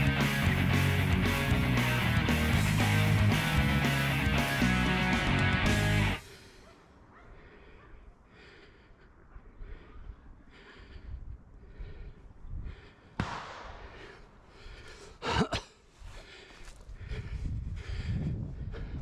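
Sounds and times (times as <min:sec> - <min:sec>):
person breathing: 0:06.2 - 0:19.0
footsteps in dry brush: 0:15.9 - 0:17.6.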